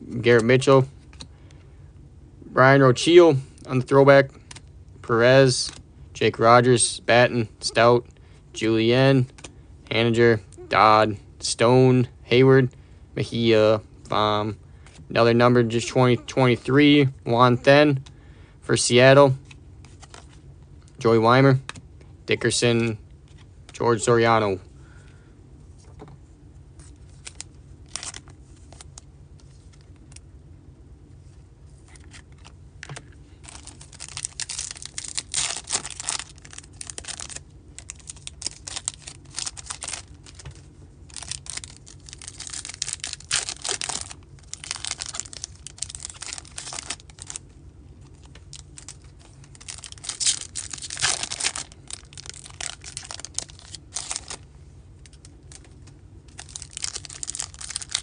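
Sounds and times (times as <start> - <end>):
cards flipping and shuffling: 4.4 - 4.7, 5.5 - 5.8, 9.2 - 9.6, 19.3 - 20.4, 31.7 - 47.4, 48.0 - 54.4
foil wrappers tearing and crinkling: 27.1 - 29.0, 33.4 - 47.4, 48.0 - 54.4, 55.0 - 58.0.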